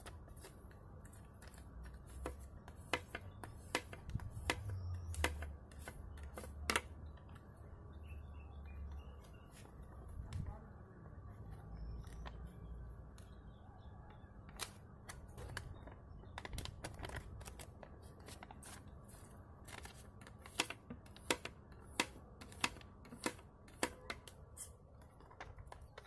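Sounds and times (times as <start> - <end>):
paper being folded and creased: 14.5 - 20.8.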